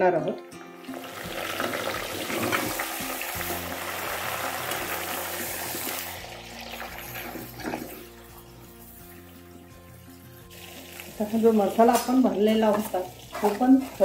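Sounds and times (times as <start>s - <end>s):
vegetables sizzling in hot oil: 0.8s - 14.0s
spoon stirring in a pot: 10.5s - 14.0s.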